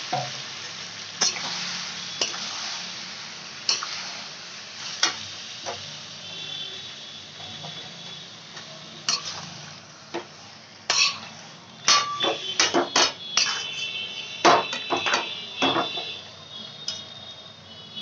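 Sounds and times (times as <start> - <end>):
faint sizzle: 0.0 - 18.0
metal spoon scraping a pan: 1.2 - 2.9, 3.6 - 5.8, 9.0 - 16.0.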